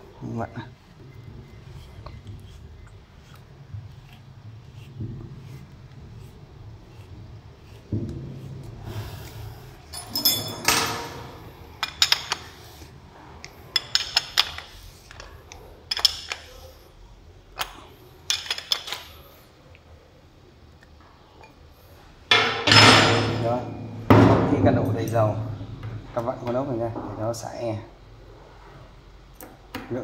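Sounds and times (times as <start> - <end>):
handling and scraping: 0.2 - 16.9
spanner clinking on metal: 9.9 - 12.6, 13.7 - 15.3, 15.9 - 16.6, 18.3 - 19.1.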